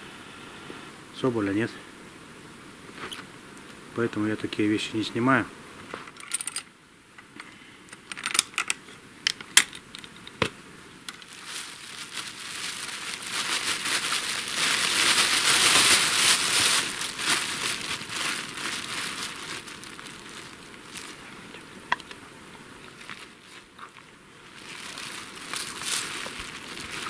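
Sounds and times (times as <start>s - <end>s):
crinkling handling noise: 5.8s - 27.0s.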